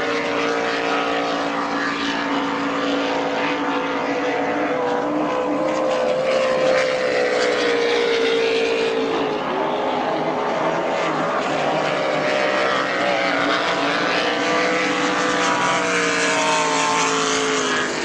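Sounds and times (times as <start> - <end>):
powerboat engines at high revs: 0.0 - 18.0.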